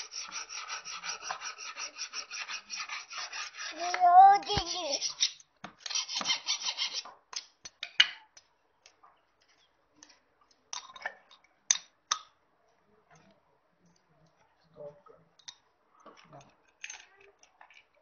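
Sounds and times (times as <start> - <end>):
metal tool scraping guide bar: 0.0 - 7.0.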